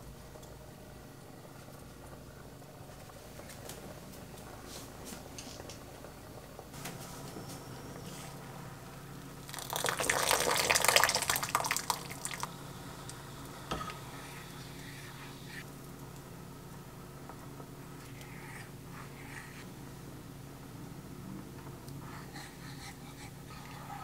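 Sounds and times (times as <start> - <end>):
steady low hum: 0.0 - 24.0
water dripping and splashing: 9.5 - 12.5.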